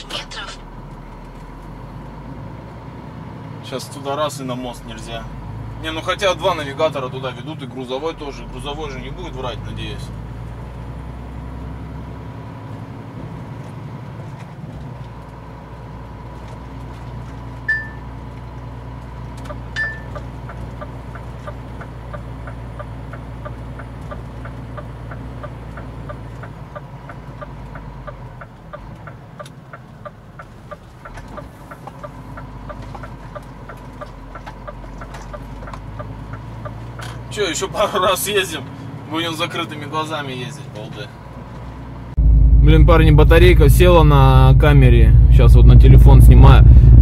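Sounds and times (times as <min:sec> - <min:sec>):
truck engine running: 0:00.0 - 0:39.1, 0:41.2 - 0:47.0
turn signal ticking: 0:13.4 - 0:37.7
short high beeps: 0:17.7 - 0:18.0, 0:19.8 - 0:20.2.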